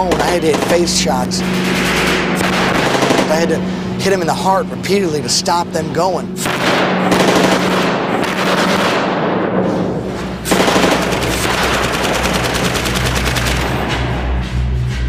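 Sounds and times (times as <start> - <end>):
automatic gunfire: 0.0 - 4.2, 6.4 - 9.6, 10.4 - 13.9
low steady drone: 0.0 - 15.0.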